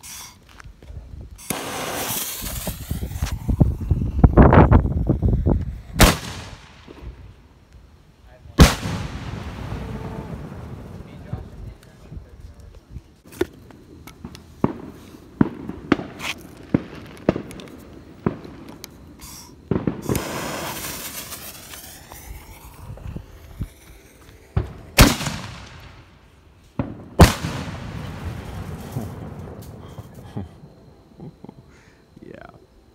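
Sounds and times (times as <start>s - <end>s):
firework reports cracking: 1.2s - 7.8s, 8.5s - 31.5s
torch hissing: 1.3s - 6.6s, 19.1s - 25.9s
loud firework booms with echoes: 1.5s - 7.3s, 8.6s - 11.7s, 14.6s - 30.2s.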